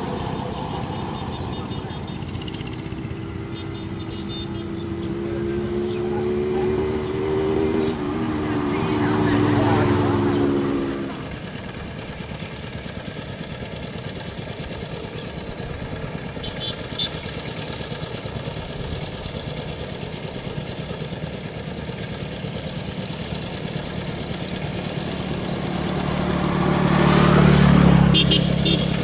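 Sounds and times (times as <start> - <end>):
diesel engine running under load: 0.0 - 29.0.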